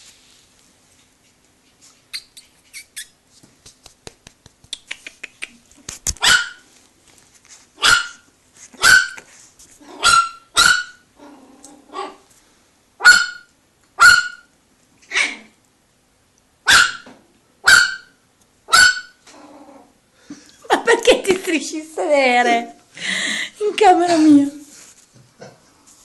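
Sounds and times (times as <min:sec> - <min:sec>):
small dog barking: 0:06.2 - 0:06.6, 0:07.8 - 0:08.2, 0:08.8 - 0:11.0, 0:11.9 - 0:12.2, 0:13.0 - 0:14.5, 0:15.1 - 0:15.5, 0:16.6 - 0:19.2.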